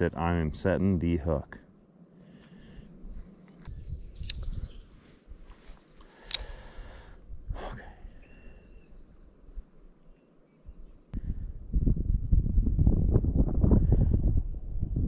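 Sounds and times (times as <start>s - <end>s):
wind buffeting microphone: 2.9s - 5.7s, 10.7s - 15.0s
bird chirps: 3.5s - 5.0s, 8.2s - 11.1s.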